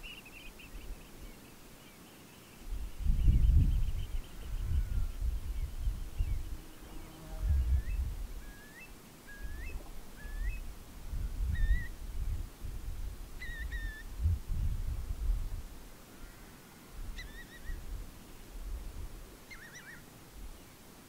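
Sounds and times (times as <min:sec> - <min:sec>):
wind buffeting microphone: 0:02.7 - 0:06.6, 0:07.4 - 0:08.4, 0:09.4 - 0:15.7
bird whistling: 0:07.9 - 0:10.6, 0:13.4 - 0:14.1, 0:17.2 - 0:17.8, 0:19.5 - 0:20.0.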